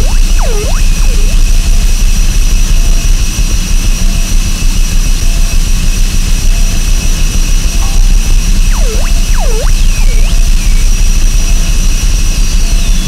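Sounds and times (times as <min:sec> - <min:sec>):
faint short beeps: 0:00.0 - 0:01.5, 0:08.7 - 0:11.0
high whine: 0:00.0 - 0:02.4, 0:07.6 - 0:12.1.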